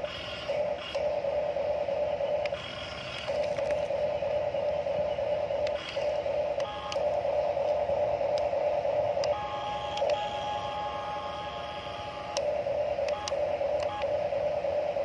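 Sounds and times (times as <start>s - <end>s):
electric toy motors whining: 0.0s - 1.2s, 2.4s - 4.1s, 5.0s - 8.6s, 9.2s - 14.2s.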